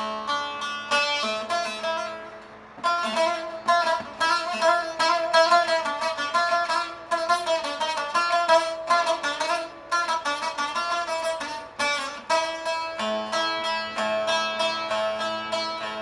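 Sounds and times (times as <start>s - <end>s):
plucked lute: 0.0s - 16.0s.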